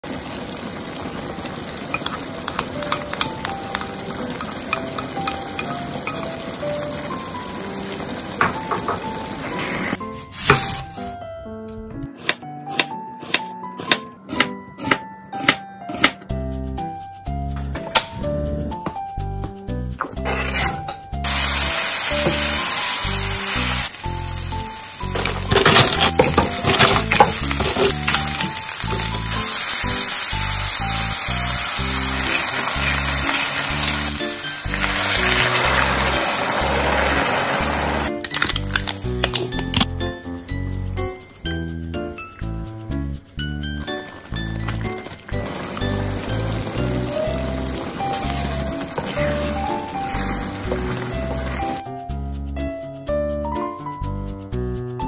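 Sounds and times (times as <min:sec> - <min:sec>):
food sizzling in oil: 0:00.0 - 0:10.8, 0:20.2 - 0:51.9
clattering stirring in pan: 0:01.9 - 0:06.2, 0:25.0 - 0:29.2, 0:47.9 - 0:51.8
stirring clicks: 0:01.9 - 0:06.2, 0:38.1 - 0:40.0, 0:43.7 - 0:45.6.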